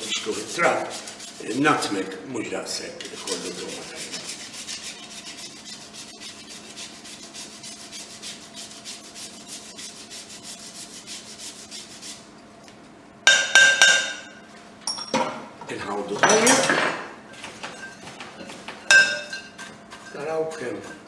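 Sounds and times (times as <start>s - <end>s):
nutmeg rasping on a grater: 0.0s - 2.0s, 3.0s - 12.2s, 19.6s - 21.0s.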